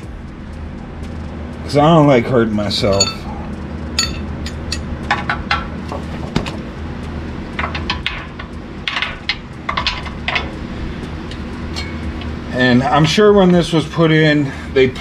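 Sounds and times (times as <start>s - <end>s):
steady low hum: 0.0s - 15.0s
hand tools clinking on metal: 2.8s - 3.3s, 4.0s - 5.7s.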